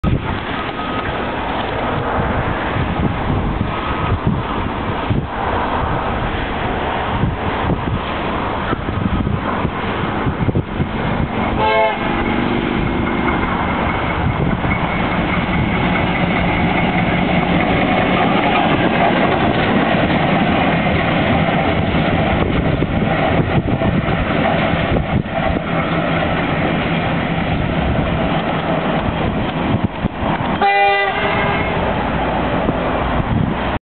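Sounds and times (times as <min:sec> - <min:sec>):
diesel locomotive engine: 0:00.0 - 0:33.8
locomotive horn: 0:11.5 - 0:12.5, 0:30.6 - 0:32.0.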